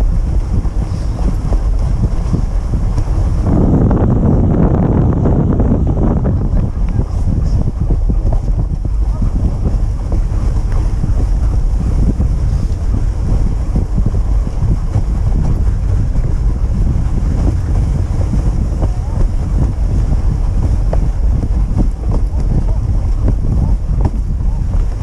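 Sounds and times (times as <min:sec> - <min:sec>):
sled runners scraping on snow: 0:00.0 - 0:05.3, 0:05.9 - 0:25.0
wind rumble on microphone: 0:00.0 - 0:25.0.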